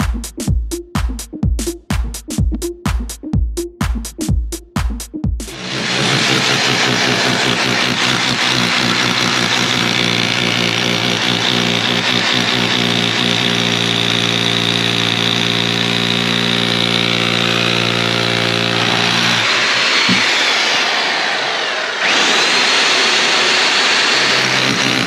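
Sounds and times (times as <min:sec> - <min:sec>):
power drill drilling into brick: 0:05.5 - 0:25.0.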